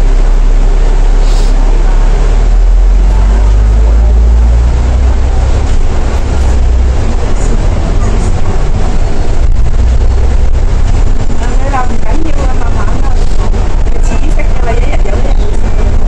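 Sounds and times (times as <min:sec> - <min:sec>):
bus engine deep rumble: 0:00.0 - 0:16.0
road noise: 0:00.0 - 0:16.0.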